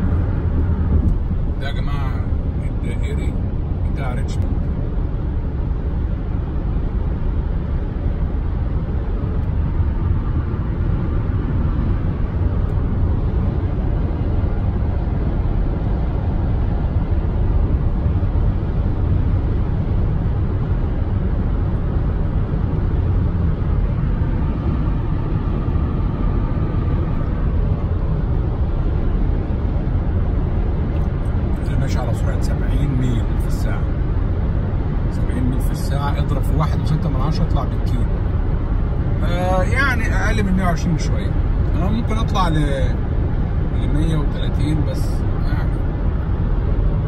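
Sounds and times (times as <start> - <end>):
tyre and wind road noise: 0.0 - 47.0.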